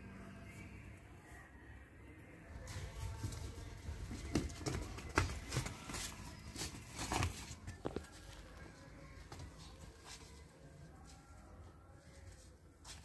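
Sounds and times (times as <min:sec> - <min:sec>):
calf hooves knocking: 0:02.7 - 0:10.4.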